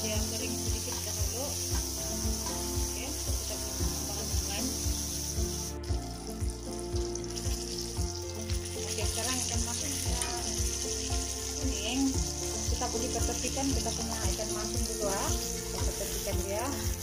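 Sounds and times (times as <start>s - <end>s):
fish deep-frying in hot oil: 0.0s - 17.0s.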